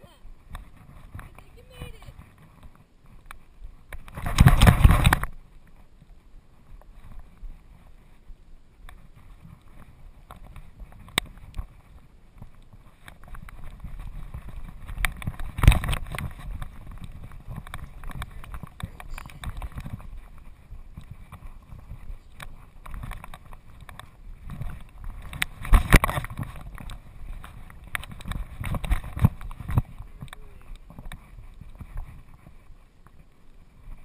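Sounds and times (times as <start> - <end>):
camera housing thumping and rubbing: 4.1 - 5.3, 15.0 - 20.0, 23.0 - 30.0.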